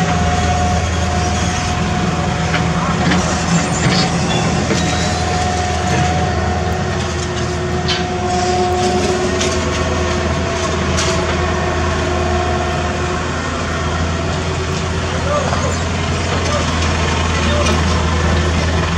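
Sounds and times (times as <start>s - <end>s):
diesel truck engine rumbling: 0.0s - 18.9s.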